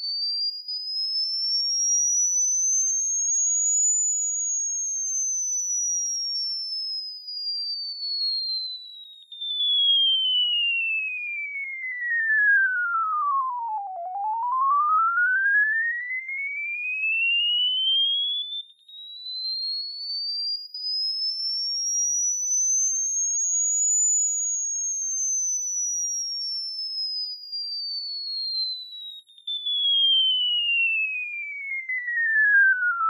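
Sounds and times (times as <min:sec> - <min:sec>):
sine-wave sweep tone: 0:00.0 - 0:33.0.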